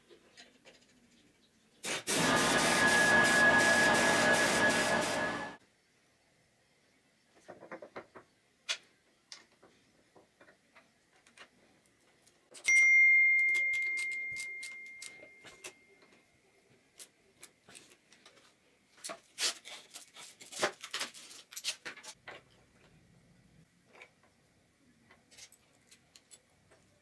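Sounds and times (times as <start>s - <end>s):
ringing metallic ding: 12.7s - 15.6s.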